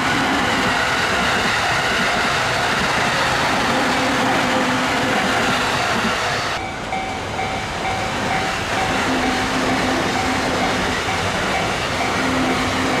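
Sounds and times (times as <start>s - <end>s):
train rushing past on rails: 0.0s - 13.0s
level crossing alarm ringing: 3.8s - 13.0s.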